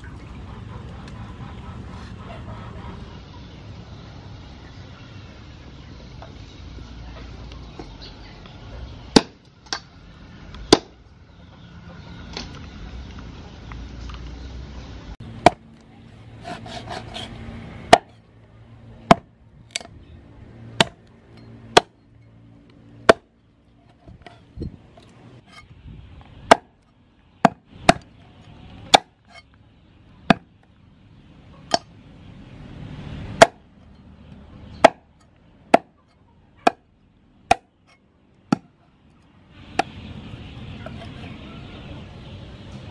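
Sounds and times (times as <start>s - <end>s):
cleaver chopping on wooden block: 16.4s - 17.3s, 17.9s - 18.2s, 19.1s - 19.9s, 20.8s - 21.0s, 23.1s - 23.3s, 26.5s - 26.7s, 27.4s - 28.1s, 28.9s - 29.2s, 30.3s - 30.5s, 33.4s - 33.6s, 34.8s - 35.1s, 35.7s - 36.0s, 37.5s - 37.7s, 38.5s - 38.7s.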